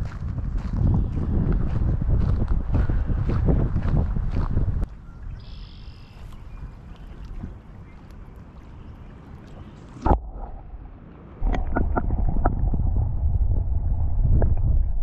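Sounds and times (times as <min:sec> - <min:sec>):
wind rumble on microphone: 0:00.0 - 0:08.4, 0:09.4 - 0:15.0
creek water flowing: 0:04.9 - 0:14.1
underwater current rumble: 0:09.4 - 0:15.0.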